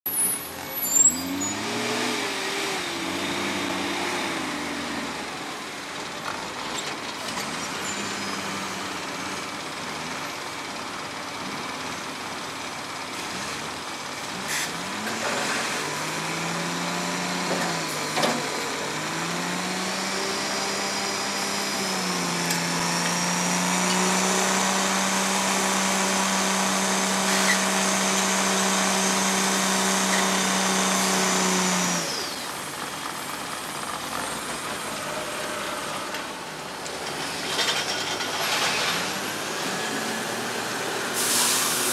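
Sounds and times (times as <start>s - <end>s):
diesel engine revving: 0.4s - 6.6s, 7.2s - 41.9s
high hydraulic whine: 40.9s - 41.9s.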